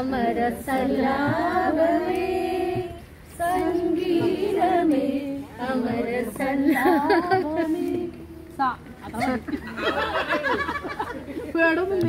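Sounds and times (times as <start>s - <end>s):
woman singing unaccompanied: 0.0s - 9.4s.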